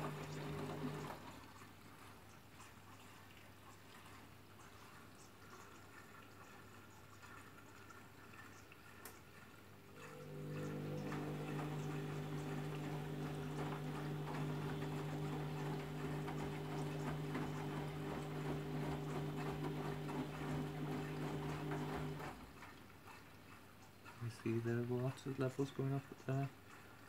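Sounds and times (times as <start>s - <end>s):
washing machine humming: 0.0s - 2.1s, 8.9s - 23.1s
water rushing into drum: 9.7s - 22.6s.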